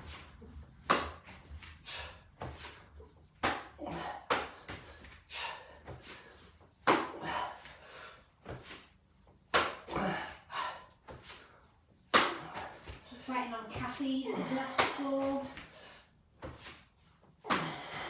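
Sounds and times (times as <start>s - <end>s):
sharp breaths: 1.3s - 9.0s, 14.2s - 18.0s.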